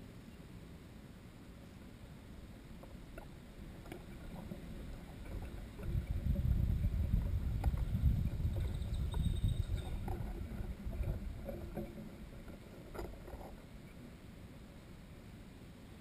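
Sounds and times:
wind buffeting microphone: 3.7s - 13.6s.

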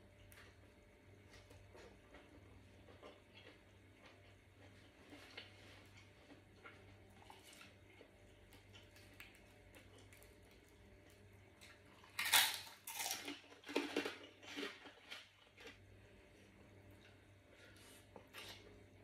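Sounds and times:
crunchy chewing: 1.2s - 16.0s.

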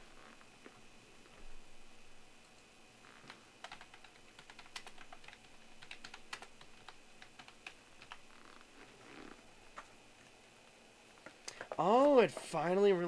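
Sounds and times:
typing on a keyboard: 3.6s - 8.3s.

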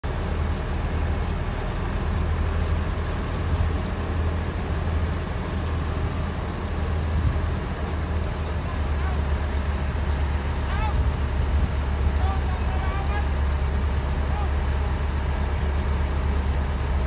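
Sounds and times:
diesel truck engine running: 0.0s - 17.0s.

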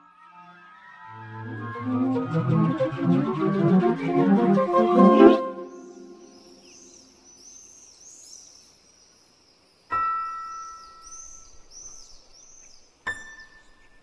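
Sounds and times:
faint high chirping: 5.6s - 14.0s.

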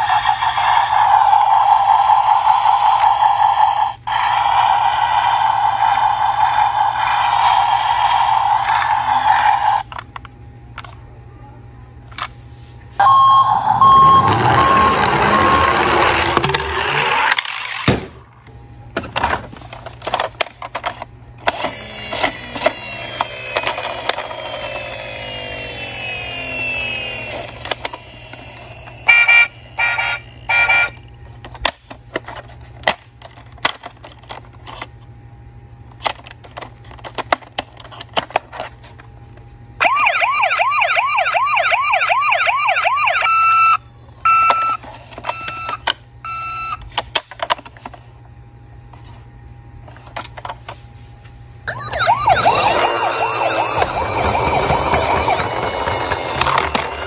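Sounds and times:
toy siren sweeping: 0.0s - 9.8s, 13.0s - 17.3s, 21.5s - 31.0s, 39.8s - 46.7s, 51.7s - 57.0s
short electronic beeps: 13.0s - 15.8s
fast warbling yelp siren: 13.0s - 16.1s, 39.8s - 43.8s, 51.7s - 57.0s.

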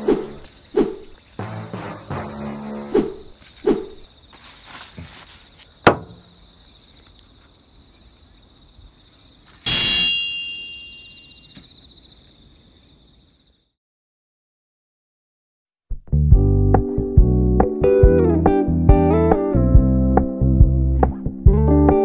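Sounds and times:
loud metallic ring: 9.7s - 11.6s.

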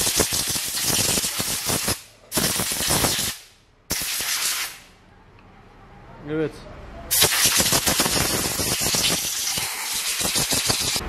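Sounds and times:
compressed air blow gun hissing: 7.1s - 11.0s.

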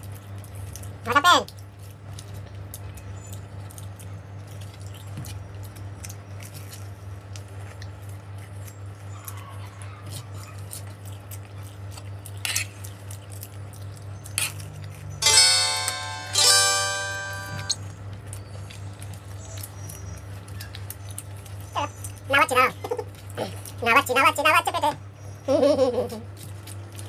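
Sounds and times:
chewing: 0.0s - 15.2s, 18.1s - 24.5s, 26.0s - 27.0s
plucked-string music: 15.2s - 17.8s.

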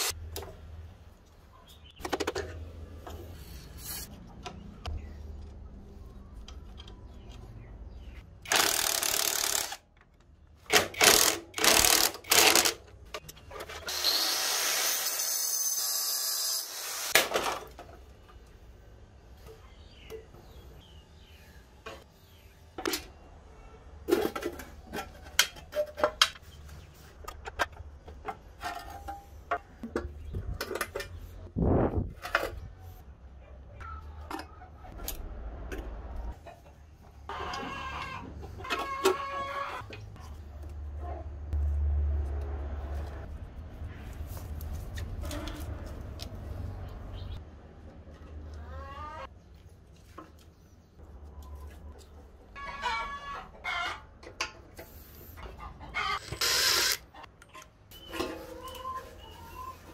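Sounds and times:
power tool bursts: 56.2s - 57.0s.

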